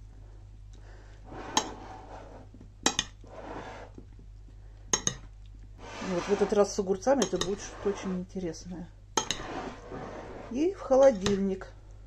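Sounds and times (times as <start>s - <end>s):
spoon stirring wet food: 4.9s - 8.3s, 9.2s - 9.6s.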